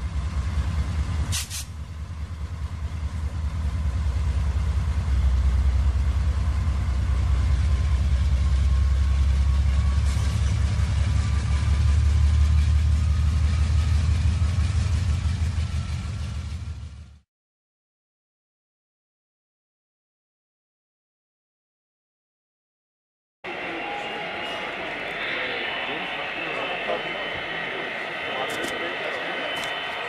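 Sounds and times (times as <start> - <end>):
model train wheels rumbling on rail: 0.0 - 17.2.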